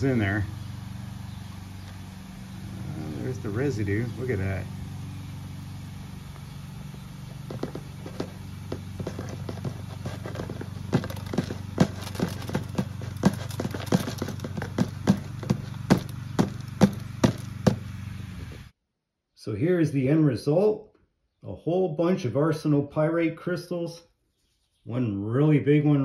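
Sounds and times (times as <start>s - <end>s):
steady low hum: 0.0s - 18.8s.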